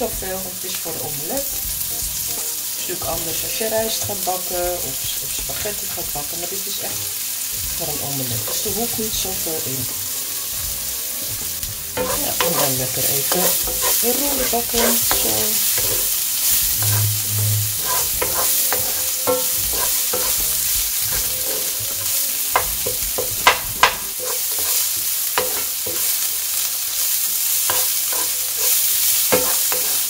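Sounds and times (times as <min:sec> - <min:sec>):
vegetables sizzling in a frying pan: 0:00.0 - 0:30.0
wooden spatula scraping a pan: 0:11.3 - 0:26.2, 0:27.6 - 0:30.0.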